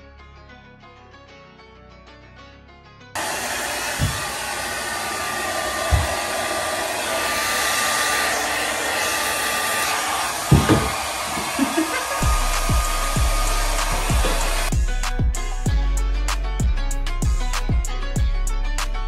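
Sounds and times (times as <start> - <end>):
hair dryer running: 3.2 - 14.8.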